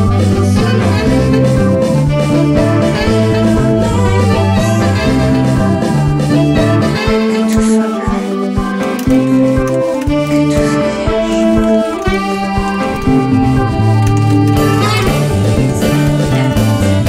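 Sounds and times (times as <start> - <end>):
bass line: 0.0 - 7.2, 9.1 - 17.0
guitar music: 0.0 - 17.0.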